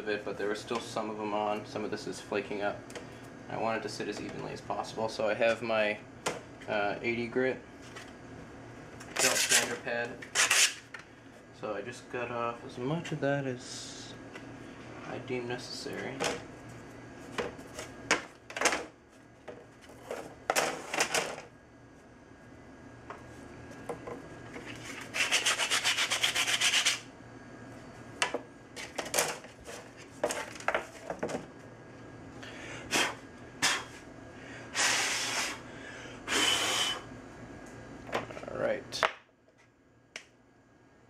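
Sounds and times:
sanding belt rubbing plywood: 25.1 - 27.0.

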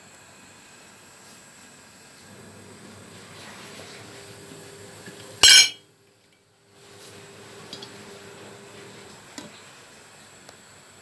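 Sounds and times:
pot lid clinking: 5.4 - 5.8.

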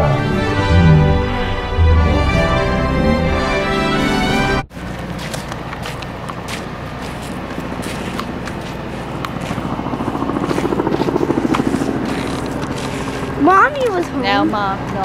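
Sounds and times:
low hum: 0.0 - 13.4
street noise: 0.0 - 15.0
footsteps: 4.8 - 14.2.

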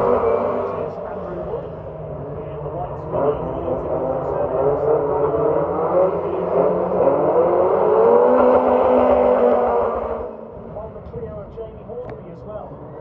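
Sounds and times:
race car engines revving: 0.0 - 13.0.

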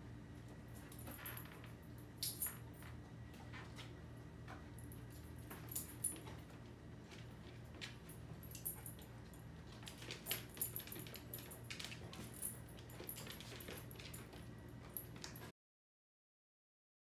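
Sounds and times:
low steady hum: 0.0 - 15.5
collar jingling: 4.8 - 6.5, 7.8 - 15.5.

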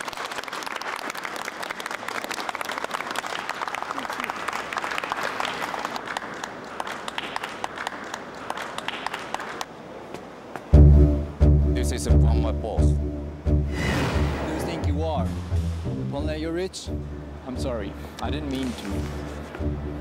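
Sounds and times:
crowd applauding: 0.0 - 9.8.

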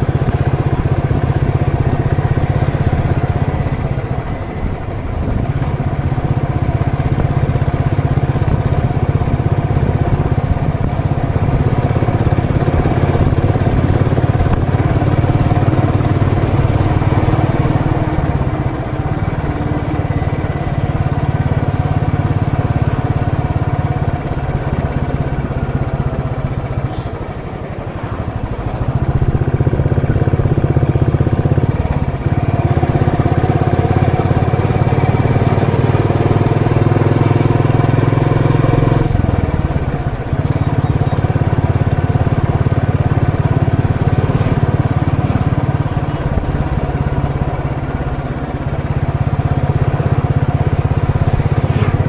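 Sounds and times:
motorcycle engine running: 0.0 - 52.0.

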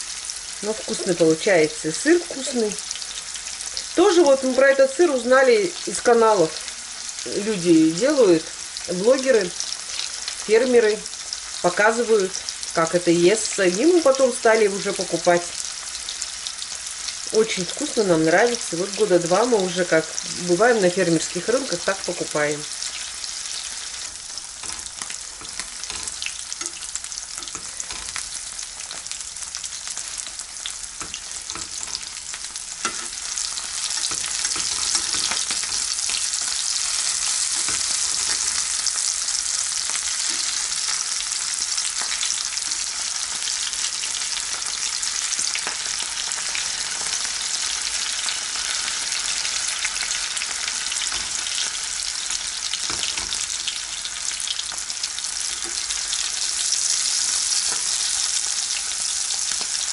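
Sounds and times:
cheese sizzling in frying pan: 0.0 - 59.9
fork clicks and scrapes: 33.8 - 36.3, 37.5 - 38.7.

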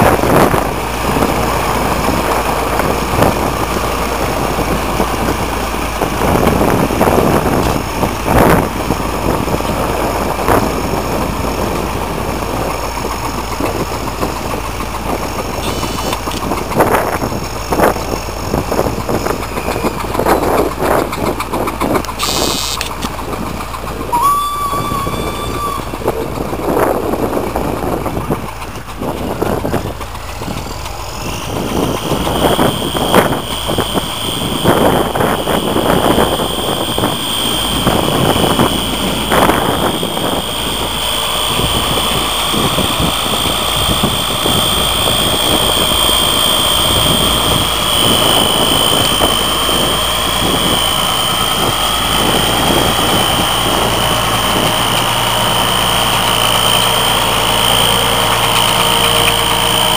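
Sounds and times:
diesel tractor engines under load: 0.0 - 59.9
high whine: 0.0 - 59.9
brief steady tone: 15.6 - 16.4, 22.1 - 22.9, 24.1 - 26.6, 31.2 - 59.9.

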